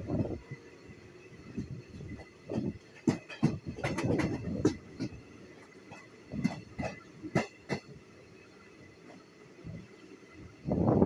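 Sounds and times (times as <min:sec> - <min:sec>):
train running rumble: 0:00.0 - 0:11.0
train wheels clattering over joints: 0:01.2 - 0:10.0.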